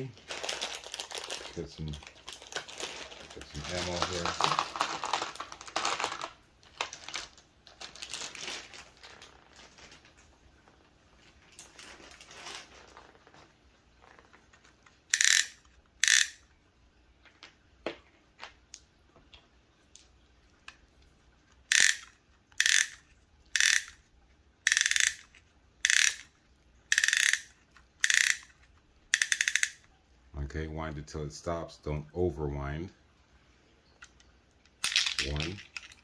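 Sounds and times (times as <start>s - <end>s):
spring ratcheting clicks: 15.1s - 16.4s, 21.7s - 23.0s, 23.6s - 24.0s, 24.7s - 26.3s, 26.9s - 28.5s, 29.2s - 29.8s.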